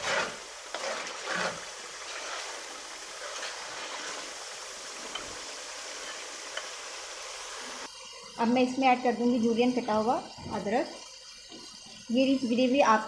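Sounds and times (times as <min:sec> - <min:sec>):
ladle stirring and scraping: 0:00.0 - 0:06.8
curry sizzling in a pan: 0:00.0 - 0:13.0.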